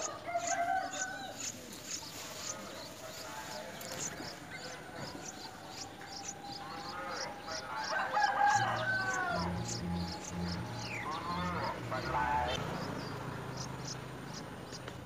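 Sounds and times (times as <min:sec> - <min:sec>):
nestlings begging chips: 0:00.0 - 0:15.0
lower drawn-out bird call: 0:05.0 - 0:13.0.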